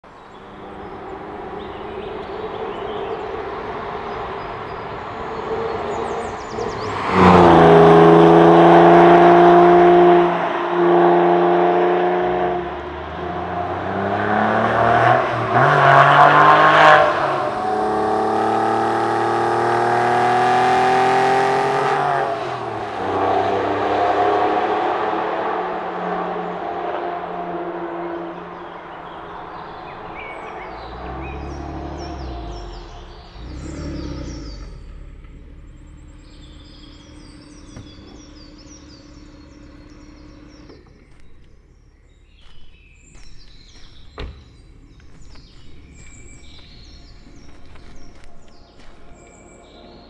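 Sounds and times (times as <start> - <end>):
car engine accelerating hard: 0.2 - 50.0.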